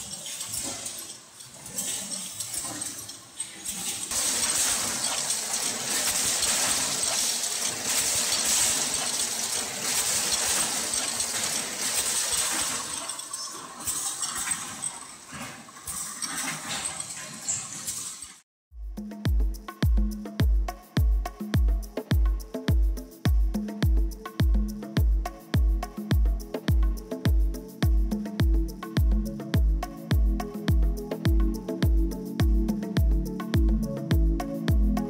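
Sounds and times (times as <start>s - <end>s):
production line machinery rushing: 0.0s - 18.4s.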